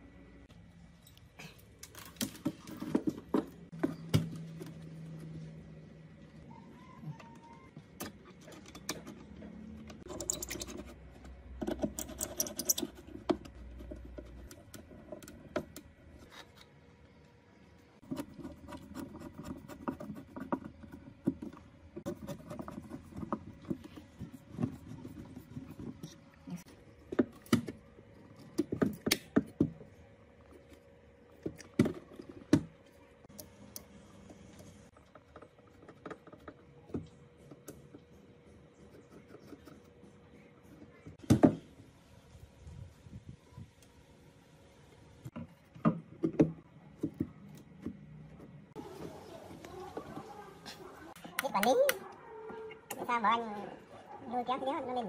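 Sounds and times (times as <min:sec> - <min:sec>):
screwdriver scraping and scratching: 0:10.0 - 0:16.8, 0:18.0 - 0:26.2.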